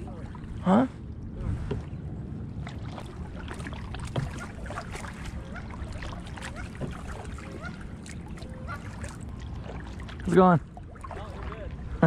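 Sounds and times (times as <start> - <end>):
low steady rumble: 0.0 - 12.0
paddle splashing water: 0.0 - 12.0
paddle knocking against hull: 2.6 - 10.2.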